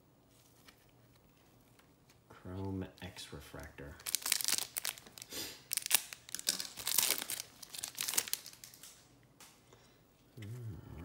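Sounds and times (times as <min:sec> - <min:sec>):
foil pack tearing and crinkling: 0:04.0 - 0:08.9.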